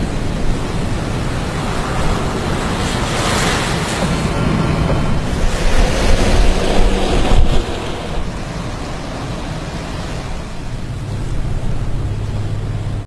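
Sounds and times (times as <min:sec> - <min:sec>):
storm wind on microphone: 0:00.0 - 0:13.0.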